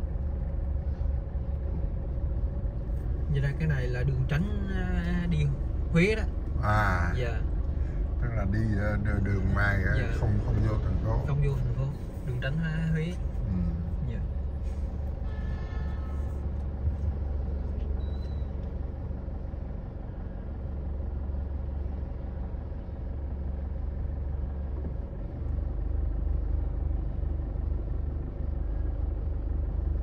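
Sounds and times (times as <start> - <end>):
road traffic rumble: 0.0 - 30.0.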